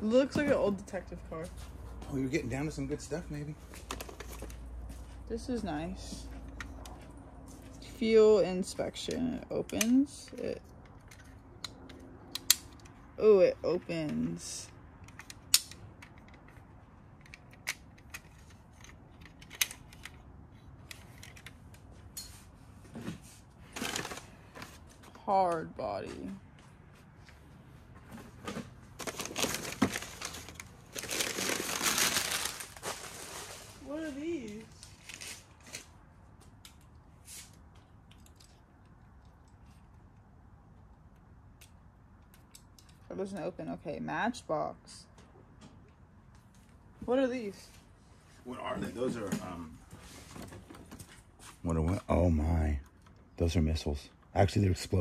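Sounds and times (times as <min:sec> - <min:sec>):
toy cars and packaging rustling: 0:03.3 - 0:04.9, 0:17.2 - 0:25.2, 0:28.0 - 0:38.6.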